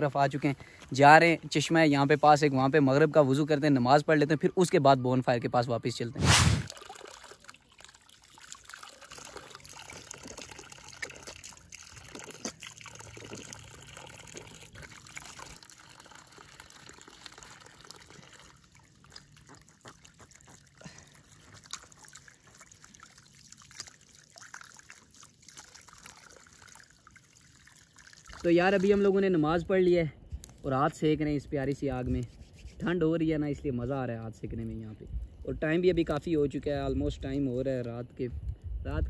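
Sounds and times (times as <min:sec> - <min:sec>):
water trickling: 0:06.6 - 0:29.8.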